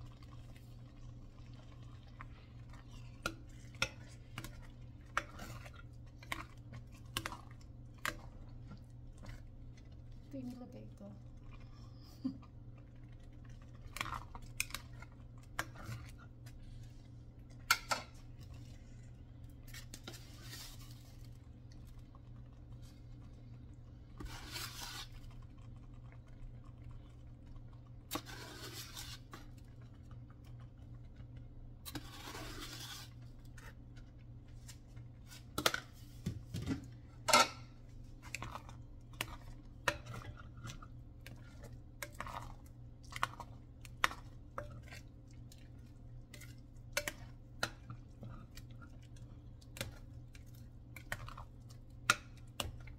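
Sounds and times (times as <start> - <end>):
scraping and rustling strokes: 19.6 - 21.3, 24.2 - 25.3, 28.1 - 29.5, 31.9 - 33.8.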